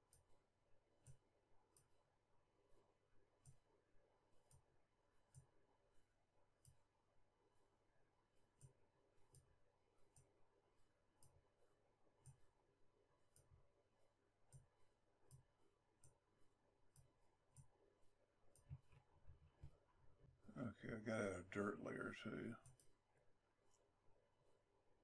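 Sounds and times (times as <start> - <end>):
low room hum: 0.0 - 25.0
computer mouse clicks: 12.2 - 12.4, 14.5 - 16.2, 18.5 - 19.8, 22.6 - 23.0.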